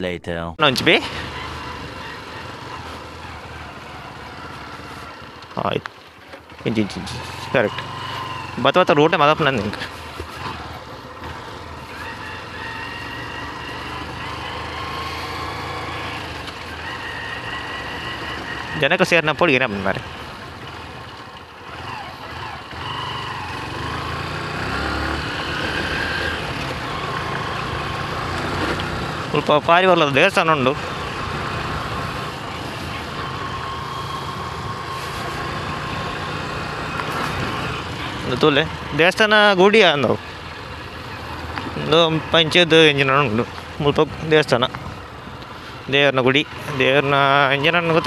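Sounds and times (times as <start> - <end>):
road noise on dirt road: 0.0 - 48.0
motorbike engine running: 0.9 - 48.0.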